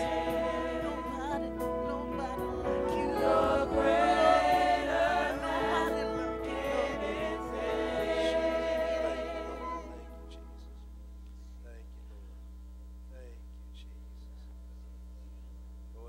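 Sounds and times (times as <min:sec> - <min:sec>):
choir singing worship song: 0:00.0 - 0:10.7
steady electrical hum: 0:00.0 - 0:16.0.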